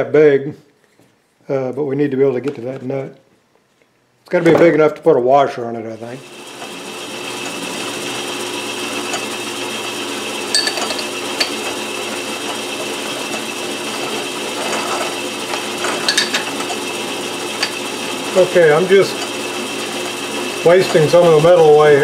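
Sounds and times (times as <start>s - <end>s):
lathe drilling into metal: 6.2s - 22.0s.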